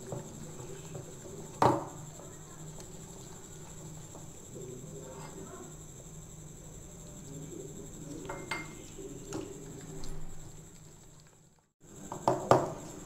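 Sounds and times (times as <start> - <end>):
knocks and clinks against bowl: 8.2 - 9.5.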